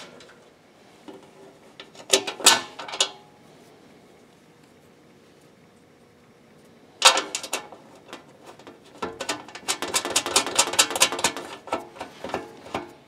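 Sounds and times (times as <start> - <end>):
bolts and nuts rattling on sheet steel: 1.8 - 3.2, 7.0 - 13.0.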